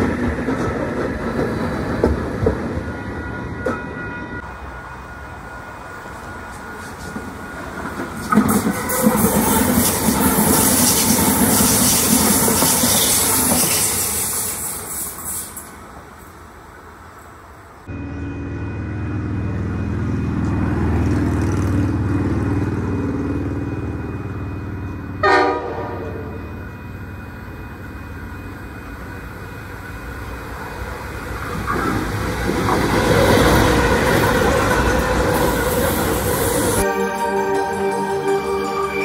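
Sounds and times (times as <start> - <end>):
train wheels clattering on rails: 0.0 - 3.9, 6.2 - 15.8
locomotive engine drone: 17.7 - 39.0
train horn blast: 25.2 - 26.5.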